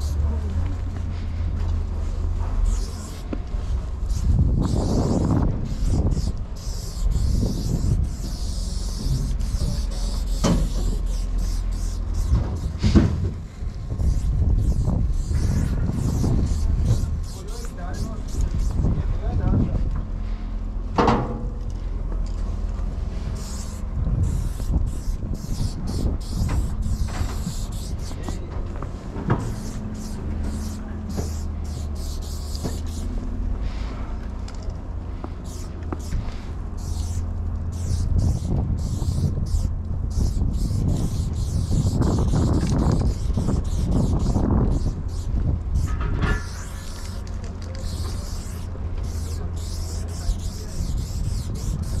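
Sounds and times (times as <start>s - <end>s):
steady low rumble: 0.0s - 52.0s
spray paint can hissing: 2.6s - 13.1s, 13.7s - 18.9s, 23.4s - 28.5s, 29.4s - 33.3s, 35.4s - 52.0s.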